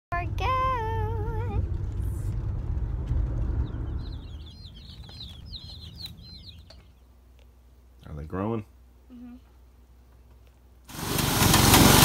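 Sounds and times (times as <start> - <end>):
car interior rumble: 0.1 - 7.8
high bird chirps: 3.4 - 7.2
child's wavering voice: 9.1 - 9.6.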